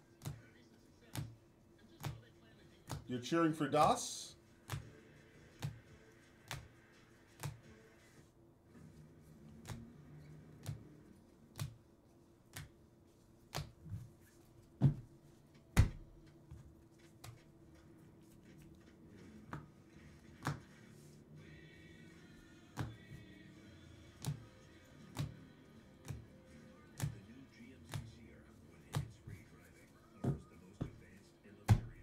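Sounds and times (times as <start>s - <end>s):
trading cards clicking on table: 6.4s - 7.7s, 9.6s - 11.8s.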